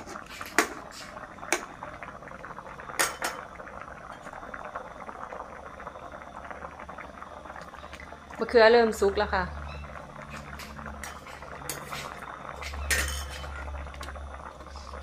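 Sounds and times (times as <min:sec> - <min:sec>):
curry bubbling in a pan: 0:00.0 - 0:15.0.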